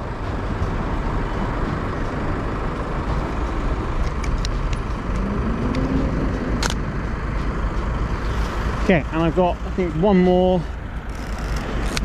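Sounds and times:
vehicle engine rising in pitch: 0:00.0 - 0:09.1
city street traffic: 0:00.0 - 0:12.0.

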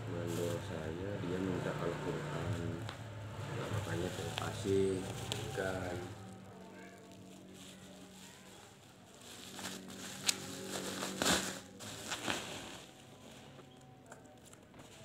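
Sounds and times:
bubble wrap crackles: 0:00.2 - 0:00.7, 0:03.6 - 0:15.0
bubble wrap rustling and crinkling: 0:00.2 - 0:00.7, 0:01.5 - 0:15.0.

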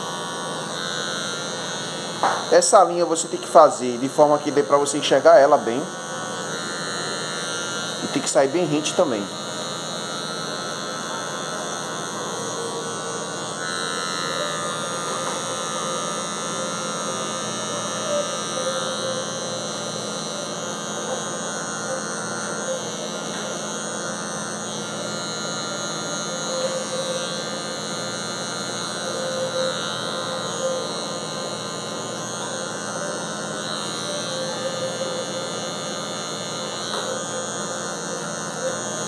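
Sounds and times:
electric hair clipper buzzing: 0:00.0 - 0:39.0.

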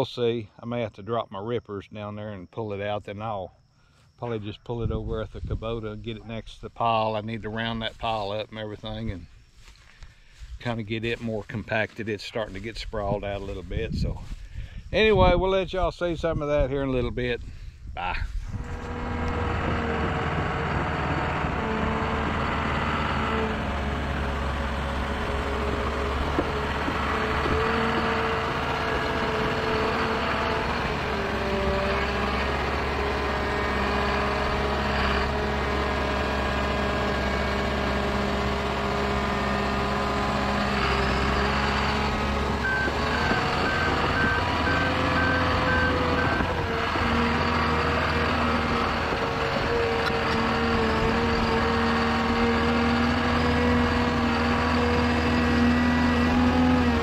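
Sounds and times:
diesel dozer engine under load: 0:18.2 - 0:57.0
backup alarm beeping: 0:41.8 - 0:46.7.

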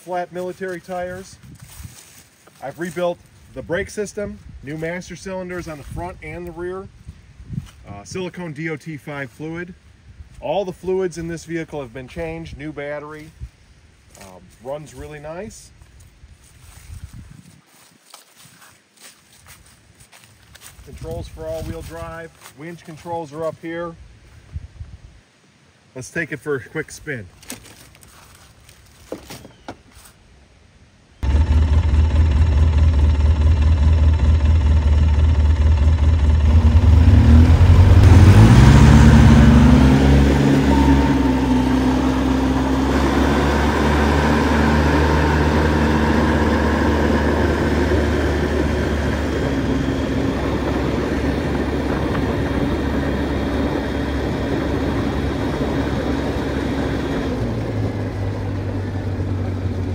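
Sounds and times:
atv engine running: 0:31.2 - 0:59.9.

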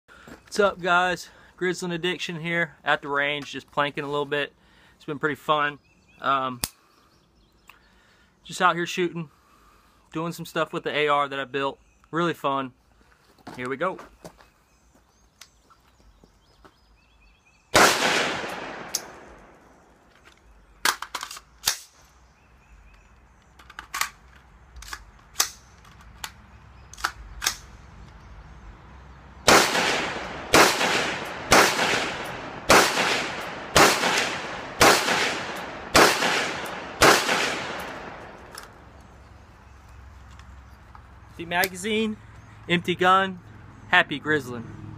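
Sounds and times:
quiet sharp cracks and clicks: 0:06.6 - 0:06.8, 0:17.8 - 0:19.6, 0:20.2 - 0:22.1, 0:22.9 - 0:28.2, 0:29.5 - 0:39.2
rifle shots with echo: 0:17.7 - 0:19.7, 0:29.5 - 0:38.5.

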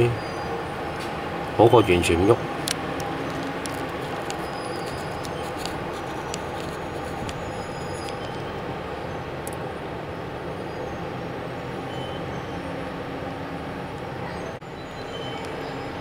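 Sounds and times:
heavy vehicles driving slowly: 0:00.0 - 0:16.0.

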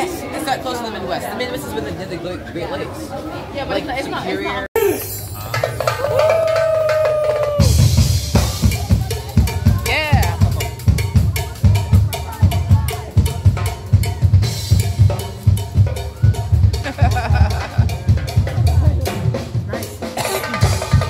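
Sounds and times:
drum kit beat: 0:04.8 - 0:21.0.

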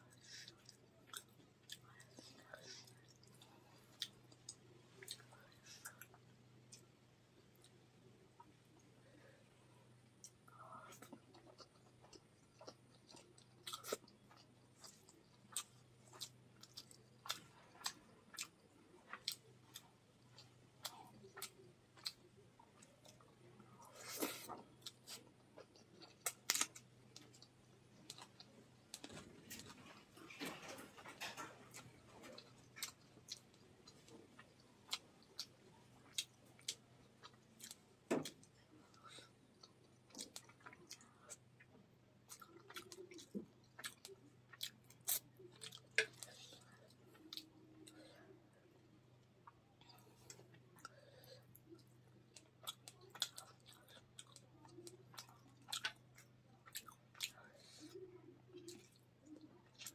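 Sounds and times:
soft chewing: 0:00.0 - 0:59.9.

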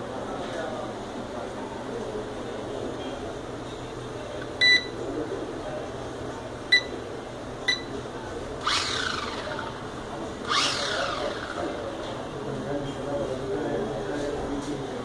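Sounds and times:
transmitter short beeps: 0:04.6 - 0:04.9.

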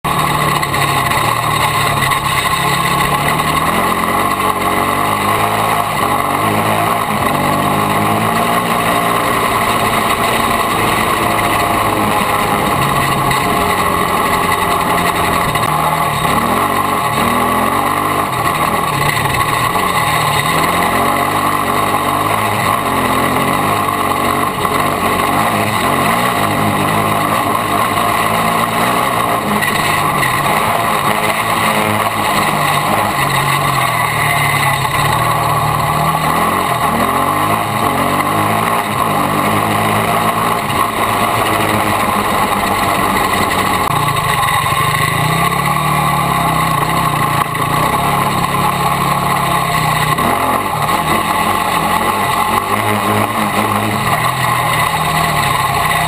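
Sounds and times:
quad engine revving: 0:00.0 - 0:56.0.

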